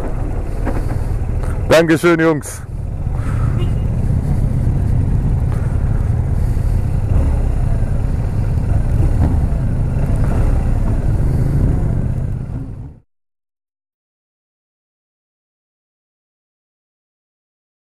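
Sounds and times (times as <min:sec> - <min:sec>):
motorcycle running at low speed: 0:00.0 - 0:13.0
wind rumble on microphone: 0:02.7 - 0:13.0.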